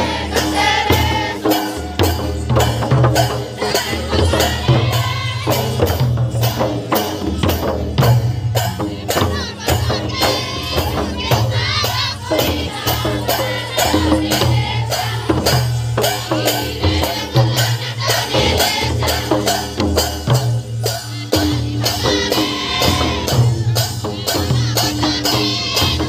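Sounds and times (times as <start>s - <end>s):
barrel drums beating: 0.0s - 26.0s
voices singing: 0.0s - 26.0s
metallic jingling: 9.7s - 17.5s.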